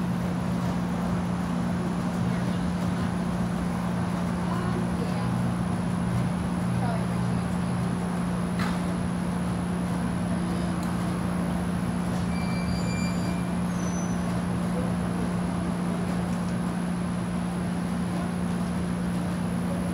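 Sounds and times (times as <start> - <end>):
steady low hum: 0.0 - 12.4
thin high whine: 12.2 - 14.2.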